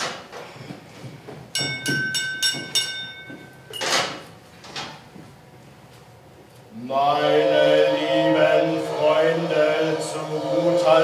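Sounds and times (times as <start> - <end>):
glass tapped ringing: 1.6 - 4.0.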